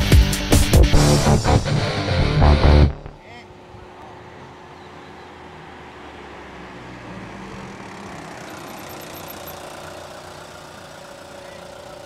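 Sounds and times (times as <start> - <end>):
road noise: 0.0 - 12.0
car engine idling: 7.5 - 12.0.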